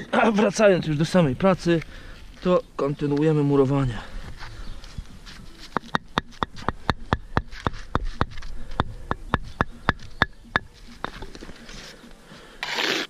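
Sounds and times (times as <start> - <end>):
hand tool tapping concrete blocks: 5.7 - 11.4.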